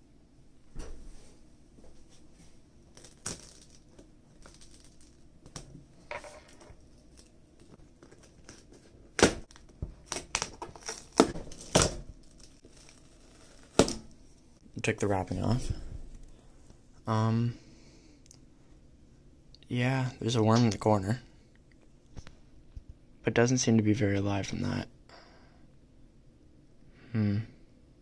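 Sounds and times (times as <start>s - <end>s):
wrapping tearing and crinkling: 2.9s - 5.7s, 6.4s - 14.1s.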